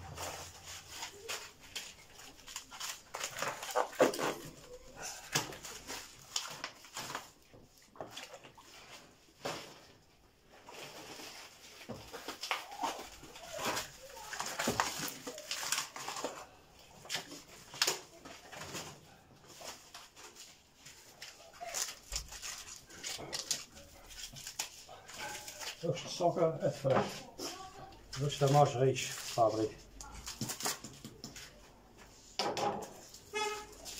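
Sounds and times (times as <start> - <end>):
plastic packaging crinkling: 0.0 - 7.4, 10.5 - 18.8, 19.5 - 31.5.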